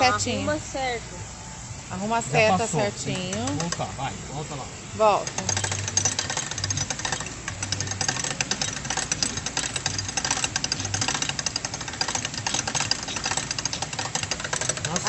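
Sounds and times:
crank and gears clicking: 3.1s - 3.9s, 5.1s - 15.0s.

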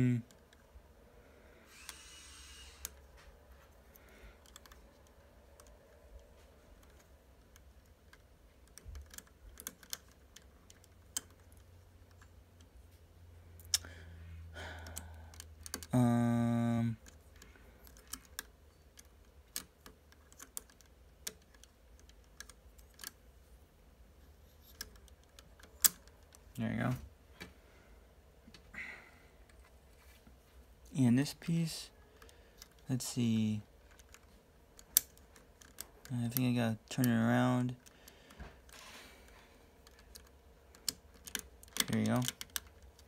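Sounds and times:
steady hum: 0.0s - 43.0s
plastic puzzle pieces clicking: 3.9s - 12.7s, 14.9s - 23.2s, 24.6s - 26.4s, 33.8s - 37.1s, 37.7s - 43.0s.

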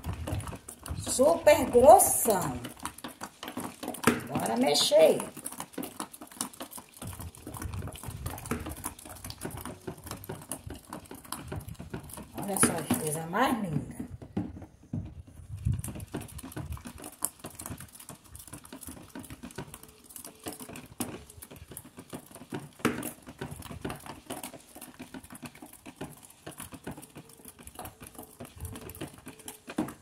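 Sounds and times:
stick knocking plastic tub: 0.0s - 17.9s
stick stirring wet soap paste: 0.0s - 30.0s.

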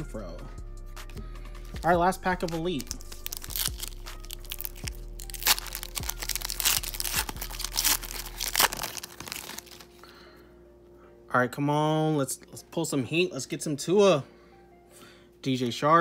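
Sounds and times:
foil wrapper crinkling: 1.6s - 10.0s.

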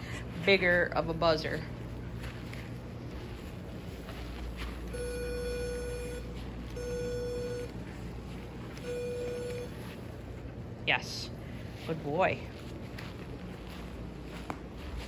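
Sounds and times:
remote beeping: 4.8s - 10.1s.

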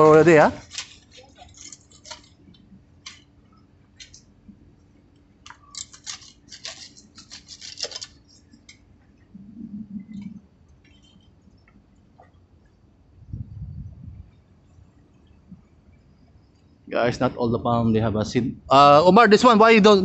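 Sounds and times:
pruning shears snipping: 0.0s - 2.4s, 3.0s - 3.3s, 5.4s - 8.2s.

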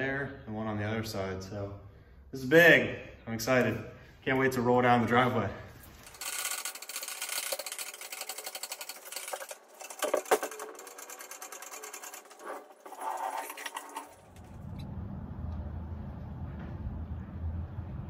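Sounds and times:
fast mechanical clicking: 6.0s - 14.6s
low steady rumble: 14.4s - 18.0s.

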